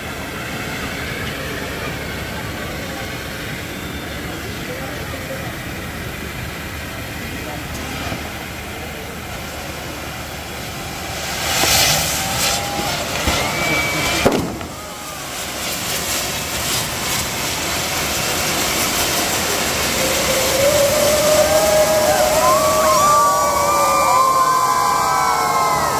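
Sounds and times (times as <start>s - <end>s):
fireworks fountain hissing and crackling: 0.0s - 25.9s
whistling glides: 0.2s - 5.5s, 10.3s - 25.9s
sharp bang: 14.2s - 14.8s.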